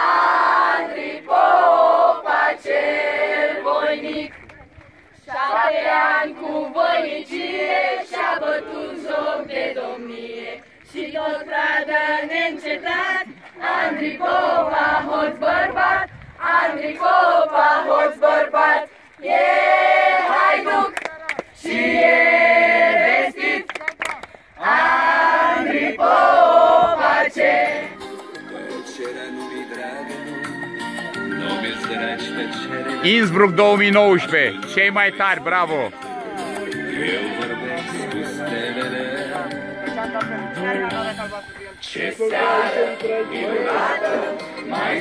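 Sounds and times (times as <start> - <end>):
men and women singing together: 5.3 - 20.9, 21.6 - 23.6, 24.6 - 28.0, 36.4 - 39.8, 41.8 - 45.0.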